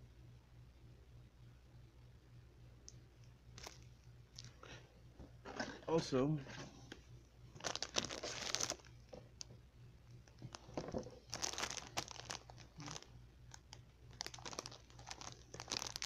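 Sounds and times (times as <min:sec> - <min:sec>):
plastic packaging crinkling: 0:03.6 - 0:03.8, 0:07.5 - 0:09.5, 0:10.2 - 0:16.0.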